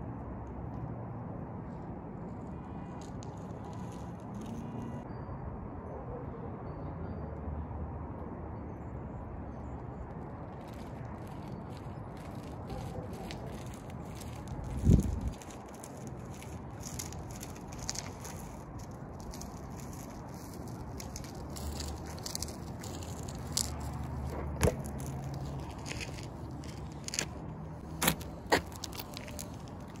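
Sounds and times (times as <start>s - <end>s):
street noise hum: 0.0s - 30.0s
bike clicks and knocks: 10.6s - 30.0s.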